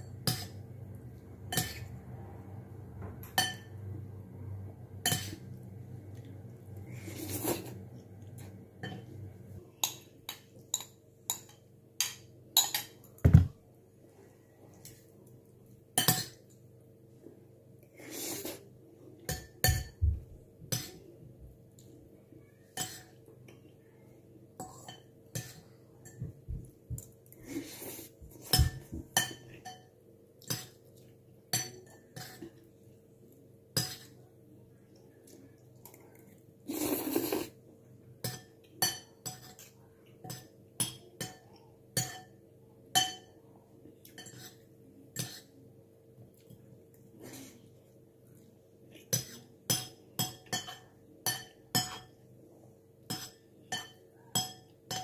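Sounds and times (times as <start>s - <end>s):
cutlery clinking on ceramic bowl: 0.0s - 0.6s, 3.2s - 3.8s, 5.0s - 5.4s, 9.8s - 13.5s, 16.0s - 16.5s, 19.3s - 20.0s, 28.4s - 29.9s, 31.5s - 32.5s, 38.2s - 41.4s, 42.0s - 43.4s, 44.1s - 44.6s, 49.1s - 52.2s, 53.1s - 55.0s.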